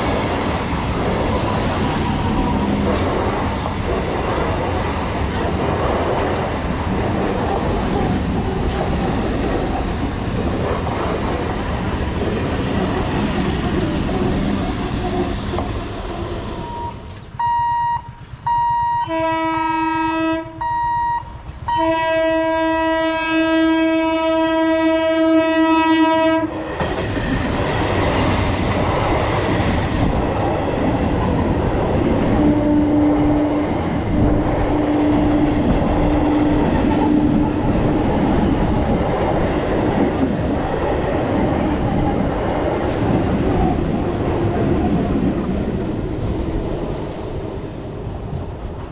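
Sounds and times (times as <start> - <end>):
train wheels rushing on rails: 0.0 - 48.9
train horn blasts: 16.6 - 26.5, 32.3 - 35.5.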